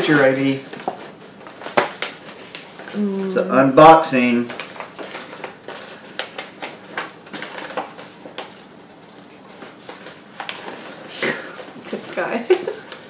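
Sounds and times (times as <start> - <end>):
paper envelope crackling and rustling: 0.0 - 3.0, 4.2 - 13.0.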